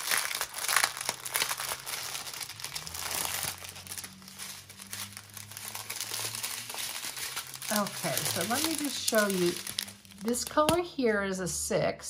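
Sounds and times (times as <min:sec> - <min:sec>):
plastic bags crinkling: 0:00.0 - 0:10.9.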